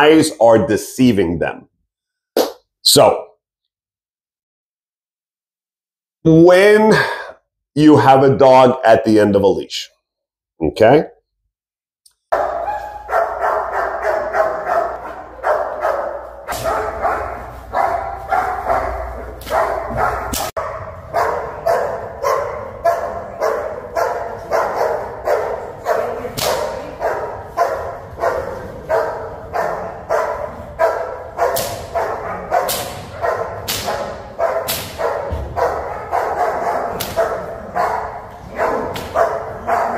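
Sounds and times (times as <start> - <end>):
dog barking: 12.3 - 39.9.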